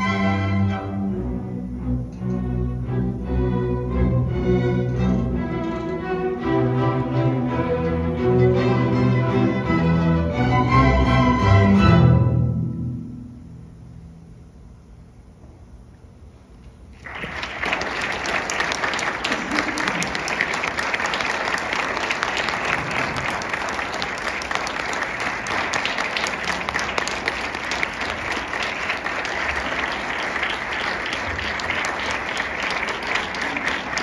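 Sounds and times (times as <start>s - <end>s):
audience applause: 17.0s - 34.0s.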